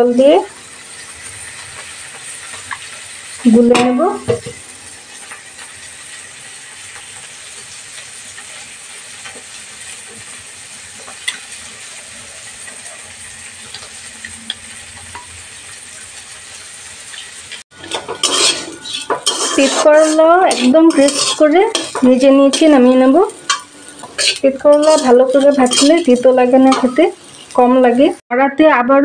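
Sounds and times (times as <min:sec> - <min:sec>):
spoon clinking against bowl: 0:17.8 - 0:22.6, 0:23.3 - 0:26.1
spoon stirring paste in bowl: 0:18.2 - 0:22.7, 0:23.5 - 0:26.0.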